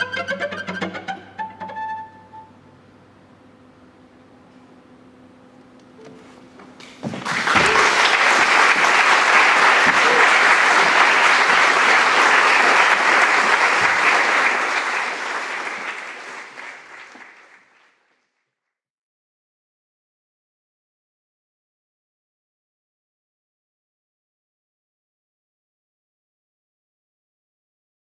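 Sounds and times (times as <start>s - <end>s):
audience applause: 7.0s - 18.2s.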